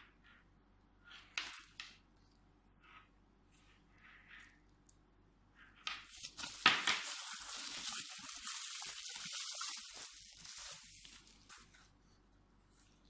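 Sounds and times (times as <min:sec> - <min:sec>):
bubble wrap crinkling: 0:05.9 - 0:12.0.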